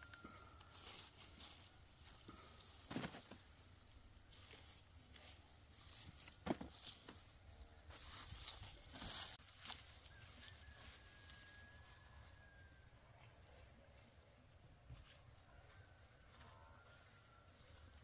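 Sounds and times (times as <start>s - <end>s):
faint thin whistling tone: 0.0s - 1.1s, 10.1s - 13.2s.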